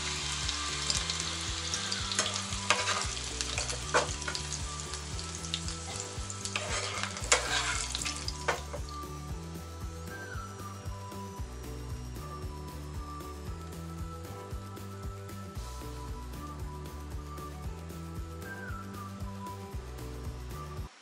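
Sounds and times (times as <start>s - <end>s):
nuts sizzling in oil: 0.0s - 16.2s.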